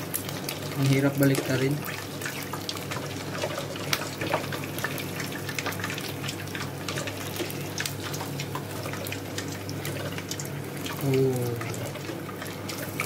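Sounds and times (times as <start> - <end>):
deep-frying sizzle and crackles: 0.0 - 13.0.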